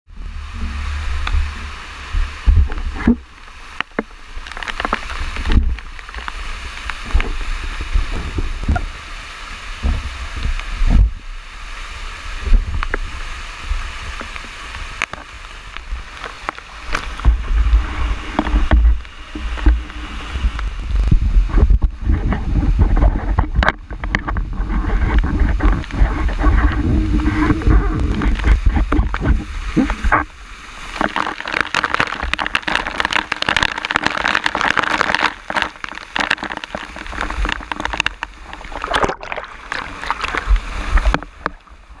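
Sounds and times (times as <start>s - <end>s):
low wind rumble: 0.1s - 31.1s
rushing water: 0.1s - 42.0s.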